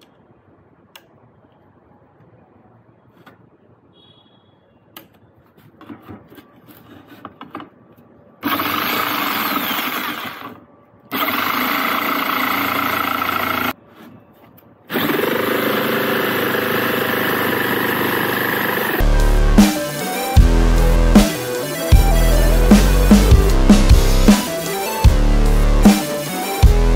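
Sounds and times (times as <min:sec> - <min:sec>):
jigsaw cutting plywood: 0:08.4 - 0:10.5, 0:11.1 - 0:13.7, 0:14.9 - 0:21.7
music with heavy beat: 0:19.0 - 0:26.9.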